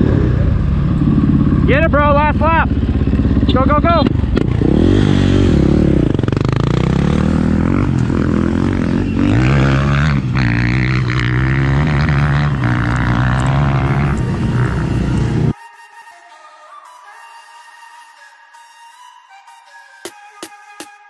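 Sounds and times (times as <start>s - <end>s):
dirt bike engine revving: 0.0s - 15.6s.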